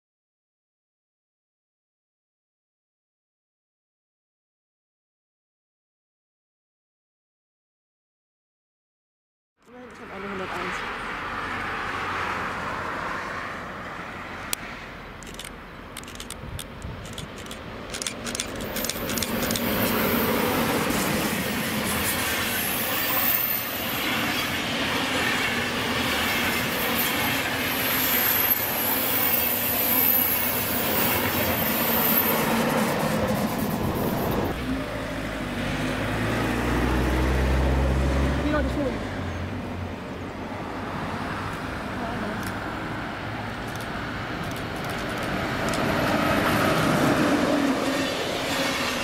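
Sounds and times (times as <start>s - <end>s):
sharp ticks of approaching train: 13.8s - 33.8s, 43.6s - 49.0s
train wheels rumbling and clattering: 15.2s - 29.4s, 43.6s - 49.0s
high-pitched wheel squeal: 22.0s - 24.6s, 26.4s - 34.6s.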